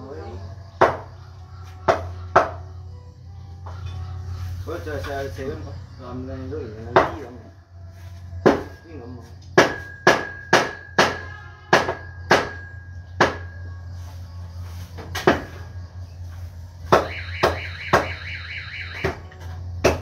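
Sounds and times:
cleavers chopping meat: 0.8s - 1.2s, 1.8s - 2.7s, 8.4s - 8.8s, 9.6s - 12.6s, 13.2s - 13.5s, 16.9s - 18.1s, 19.8s - 20.0s.

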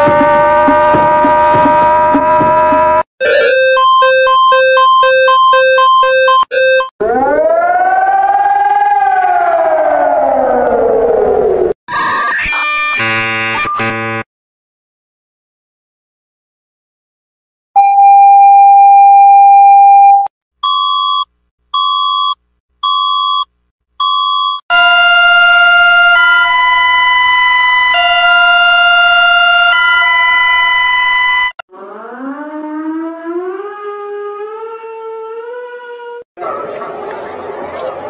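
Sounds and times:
loud steady alert tone: 0.0s - 6.9s
two-tone alarm: 0.0s - 7.0s, 17.8s - 32.5s
wavering siren-like tone: 0.0s - 11.7s, 26.0s - 36.2s
short electronic beeps: 3.2s - 6.9s, 17.8s - 24.6s.

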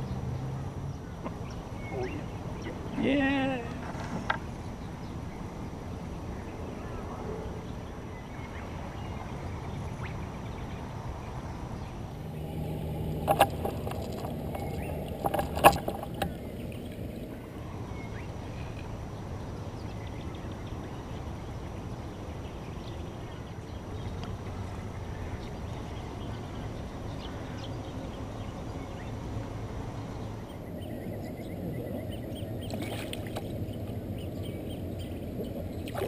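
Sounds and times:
canoe moving on calm water: 3.7s - 6.7s, 11.7s - 36.0s.

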